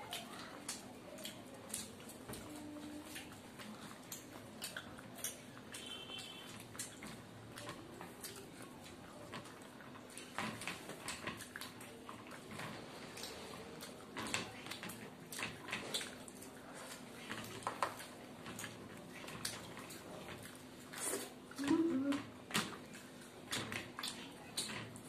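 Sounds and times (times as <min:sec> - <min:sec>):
wet chewing and lip smacks: 0:00.0 - 0:21.8, 0:22.7 - 0:25.0
fingers squishing bread in gravy: 0:00.0 - 0:25.0.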